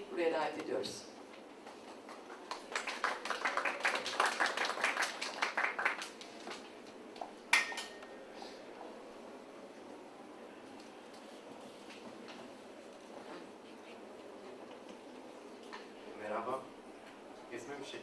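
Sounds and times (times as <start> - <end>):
small audience applause: 1.7 - 7.0.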